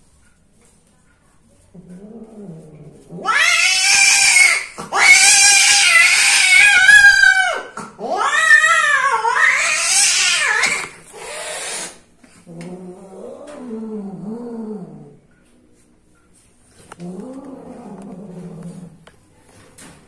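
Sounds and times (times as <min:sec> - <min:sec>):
cat yowling: 0:03.2 - 0:11.9.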